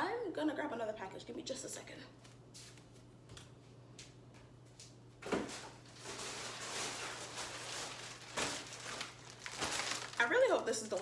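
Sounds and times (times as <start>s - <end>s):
package rustling and shuffling: 4.8s - 11.0s.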